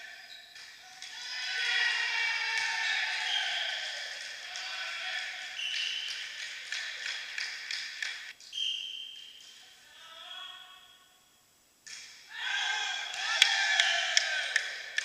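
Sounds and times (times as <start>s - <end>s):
players calling out: 0.0s - 7.4s, 12.3s - 15.0s
shoe squeaks: 0.2s - 0.6s, 8.5s - 9.4s.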